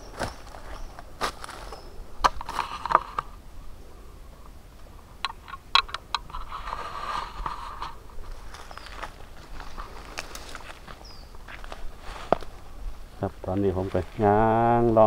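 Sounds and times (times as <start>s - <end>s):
footsteps crunching dry leaves: 0.0s - 3.2s, 6.7s - 14.8s
leaves rustling: 0.0s - 15.0s.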